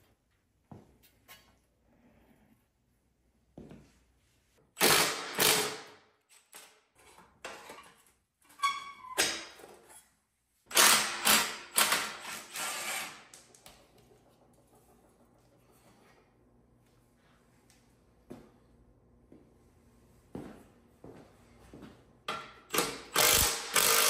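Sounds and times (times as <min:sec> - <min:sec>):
metal squeak: 0:08.5 - 0:09.2.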